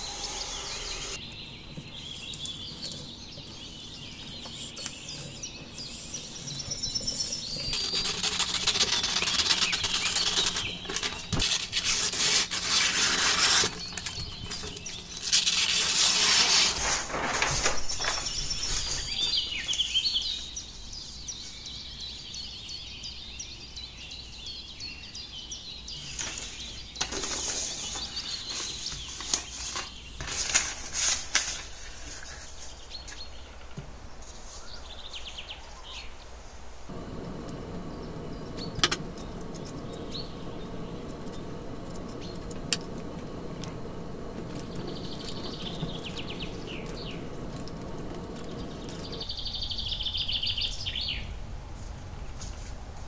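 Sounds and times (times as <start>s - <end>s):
bird chirps: 0.0s - 12.1s, 17.9s - 27.0s, 36.9s - 51.3s
paper rustling and scraping: 1.8s - 19.7s, 26.1s - 33.4s.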